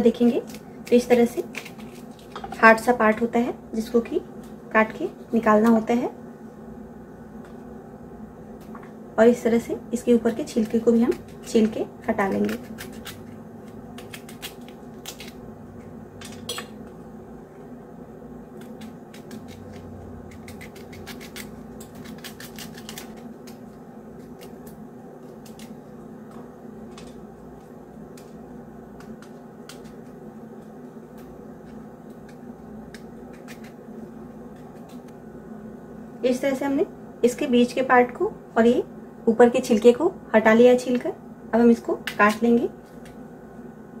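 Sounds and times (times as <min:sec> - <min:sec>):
knife scraping fruit rind: 0:00.0 - 0:02.7, 0:10.1 - 0:15.4, 0:18.6 - 0:25.9, 0:26.9 - 0:35.1
steady low hum: 0:00.0 - 0:44.0.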